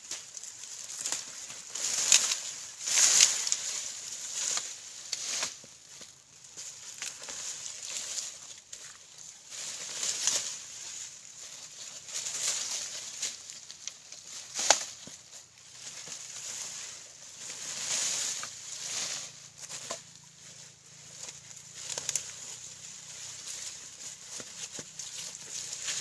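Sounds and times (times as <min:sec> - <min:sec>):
plants rustling and crackling: 0:00.0 - 0:26.0
sharp crack of stalk: 0:14.5 - 0:15.0.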